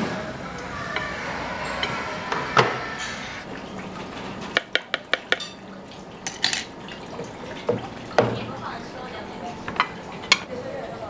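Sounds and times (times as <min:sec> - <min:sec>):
dishes and utensils clattering: 0:04.2 - 0:08.6.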